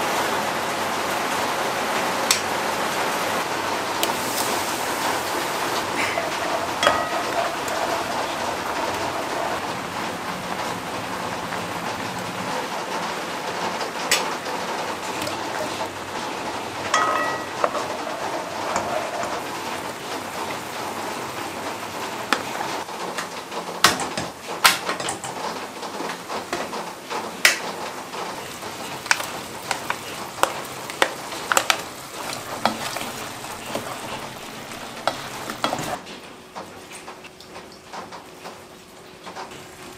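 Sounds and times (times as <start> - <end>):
curry bubbling in a pot: 3.9 - 12.9, 27.4 - 36.0
spatula knocking against pot: 6.1 - 8.3, 16.9 - 18.1.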